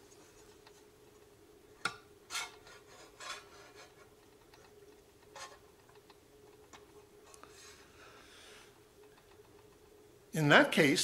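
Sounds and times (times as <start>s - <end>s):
scraping and rubbing: 2.3s - 4.2s, 5.3s - 5.6s.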